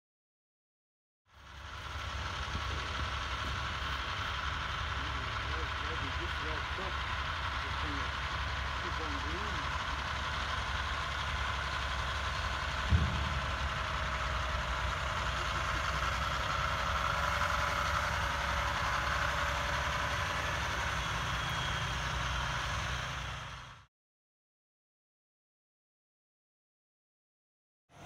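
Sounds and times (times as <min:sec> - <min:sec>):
truck diesel engine running: 0:01.3 - 0:23.9
short thump: 0:12.9 - 0:13.6.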